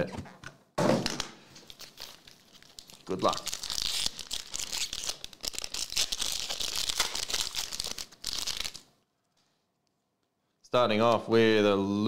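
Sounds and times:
card pack wrapper tearing open: 1.6 - 8.9.

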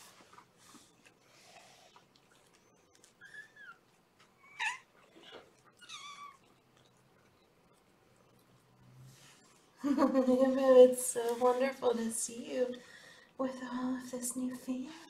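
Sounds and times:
kittens mewing: 4.4 - 6.6.

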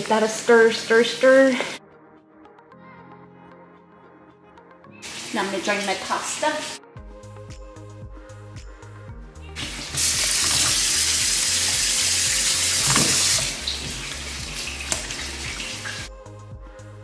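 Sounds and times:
water splashing into metal sink: 9.6 - 16.1.

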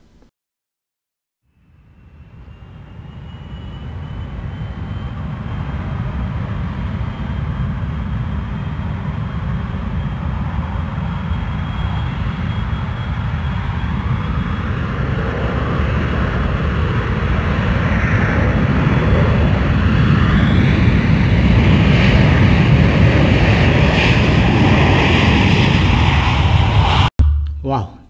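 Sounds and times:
aircraft engine rumble: 2.1 - 28.0.

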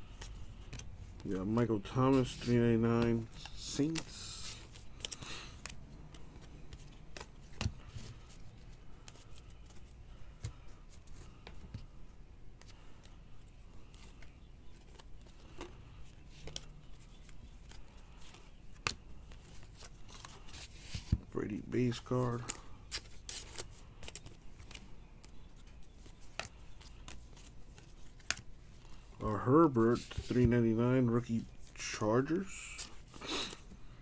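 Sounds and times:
trading cards flipped by hand: 0.0 - 0.9, 1.7 - 11.8, 13.8 - 21.3, 22.0 - 29.0.

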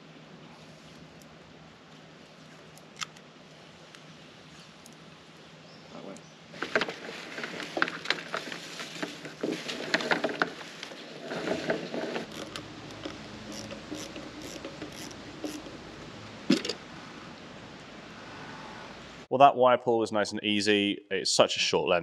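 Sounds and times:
wires rubbing through conduit: 6.5 - 15.9.

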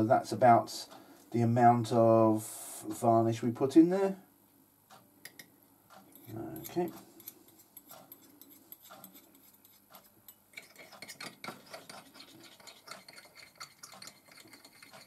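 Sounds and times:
spoon clinking in metal cup: 10.6 - 15.0.

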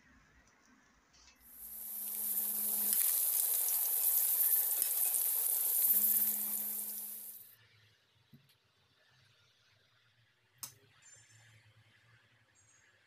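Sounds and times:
chicken sizzling in hot oil: 1.4 - 7.5
low steady hum: 1.6 - 7.5.

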